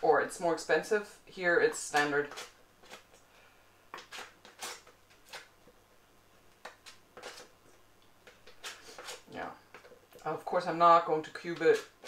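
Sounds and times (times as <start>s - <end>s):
knife slicing butter in paper: 1.8s - 3.1s, 4.0s - 5.5s, 6.6s - 7.5s, 8.2s - 10.0s, 11.4s - 12.0s.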